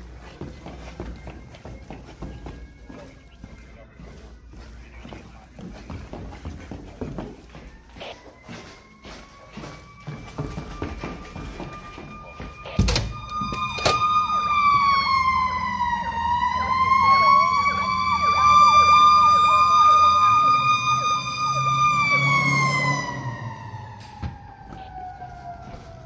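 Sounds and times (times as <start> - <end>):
fire engine siren wailing: 7.0 - 26.0
yelping siren: 7.2 - 26.0.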